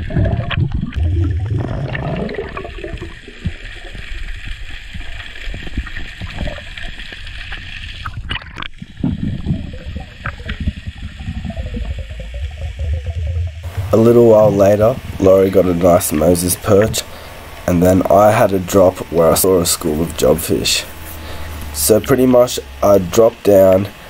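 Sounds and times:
muffled underwater rushing: 0.0 - 22.8.

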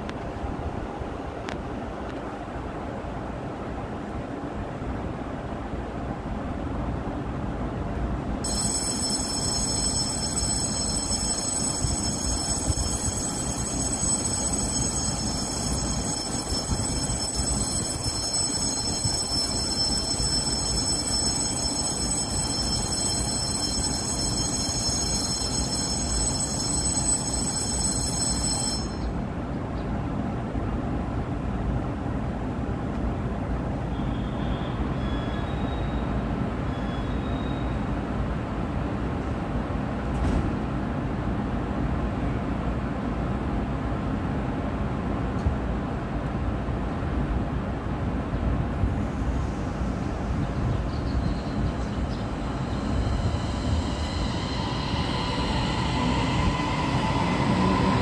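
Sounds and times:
high steady ringing tone: 8.4 - 29.3, 49.1 - 58.0
electric train equipment humming: 8.5 - 29.3, 48.9 - 58.0.

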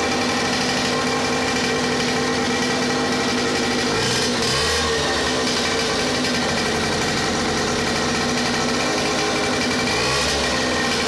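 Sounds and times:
boat engine running: 2.4 - 11.0.

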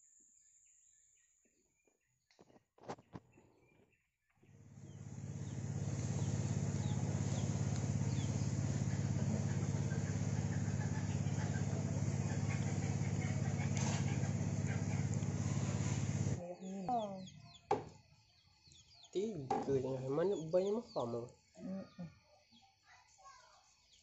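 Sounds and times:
small engine humming: 4.4 - 18.0.

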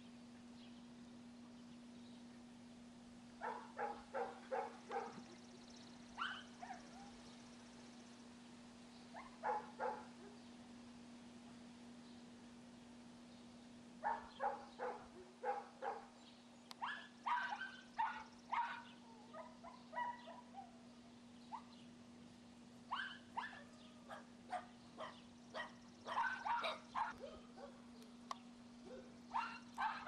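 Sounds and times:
puppies yipping and barking: 6.2 - 7.1, 16.8 - 20.7, 22.9 - 27.8, 28.9 - 30.0.

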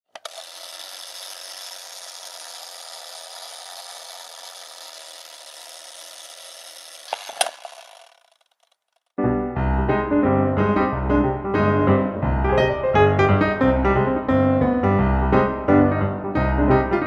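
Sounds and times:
sharp clicks: 0.1 - 2.3, 6.6 - 9.2.

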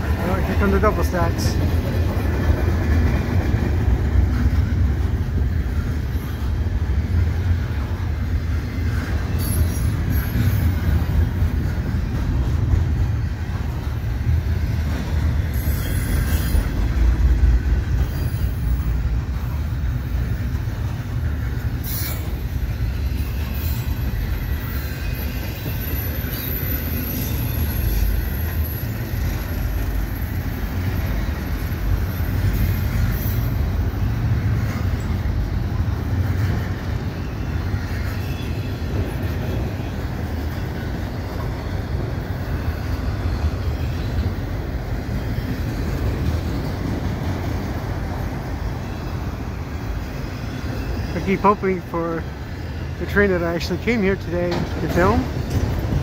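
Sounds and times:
freight train wheels rumbling on rail: 0.0 - 56.0
sharp knocks of train cars: 54.2 - 56.0.

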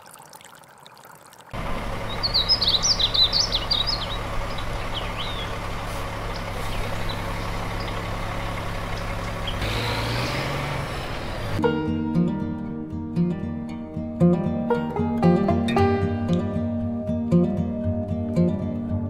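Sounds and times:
bird chirping: 1.6 - 11.6
low engine hum: 1.6 - 11.6.

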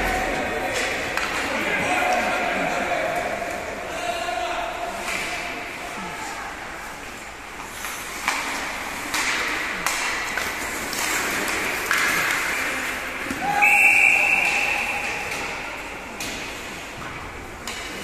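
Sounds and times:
hockey sticks knocking puck: 0.0 - 2.3, 7.6 - 13.6, 14.3 - 16.7, 17.6 - 18.0.

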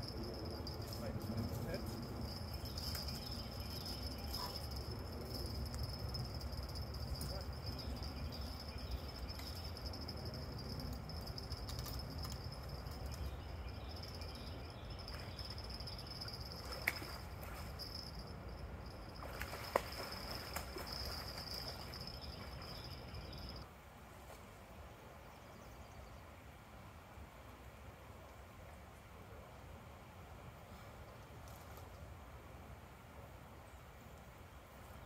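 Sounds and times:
high-pitched insect trill: 0.0 - 23.6.

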